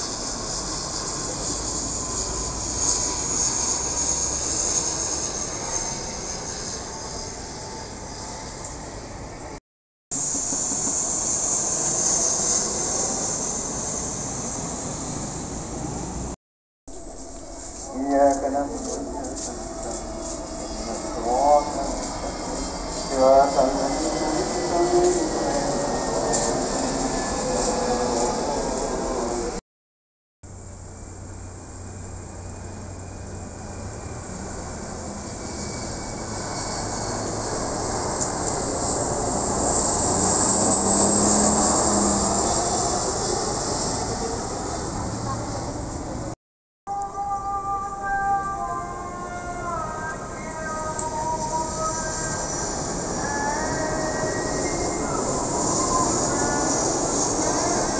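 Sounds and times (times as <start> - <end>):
jet passing overhead: 0.0 - 29.6, 31.8 - 46.4, 49.6 - 57.9
quiet steady aircraft noise: 30.5 - 41.0.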